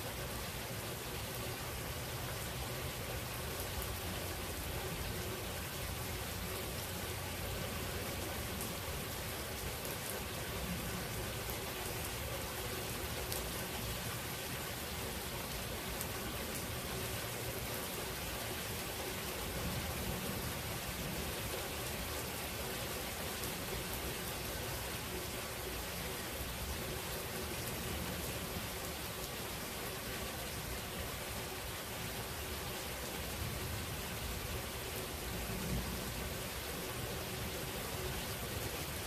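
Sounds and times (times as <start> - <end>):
rain hissing: 0.0 - 39.0
faint raindrop ticks: 13.2 - 13.6.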